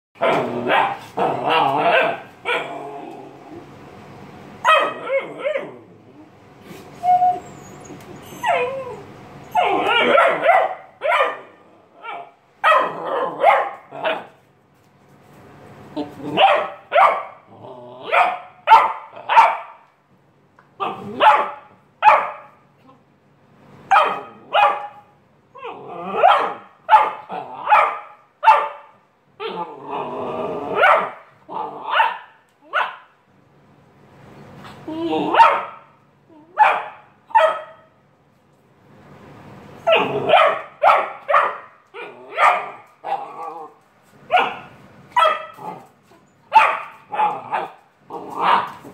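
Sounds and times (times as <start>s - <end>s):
puppy barking: 0.2s - 2.8s, 4.6s - 5.8s, 8.3s - 14.4s, 16.3s - 17.4s, 18.0s - 19.9s, 20.8s - 22.6s, 23.9s - 25.1s, 26.1s - 29.7s, 30.7s - 33.2s, 35.3s - 37.9s, 39.8s - 43.4s, 44.3s - 45.9s, 46.5s - 48.9s.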